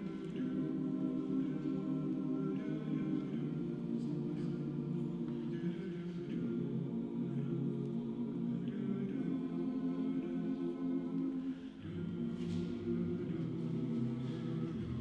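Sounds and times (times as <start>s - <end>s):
men's chorus singing a cappella: 0.0s - 15.0s.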